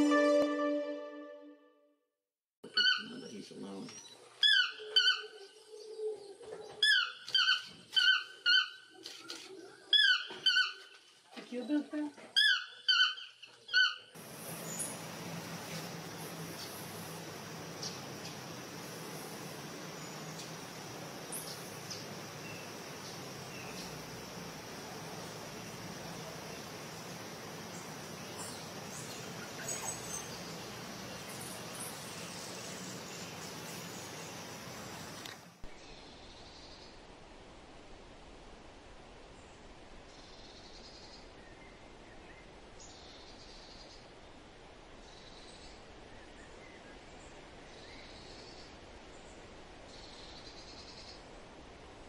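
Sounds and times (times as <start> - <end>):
faint bird chirps: 2.7 - 11.0
insects hissing: 14.2 - 35.6.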